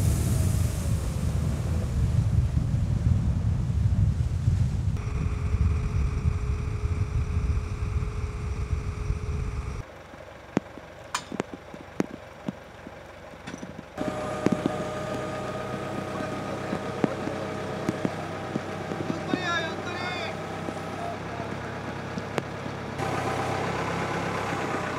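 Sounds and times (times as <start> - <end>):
boat engine rumble: 0.0 - 24.9
wind: 0.0 - 24.9
crane engine humming: 5.0 - 24.9.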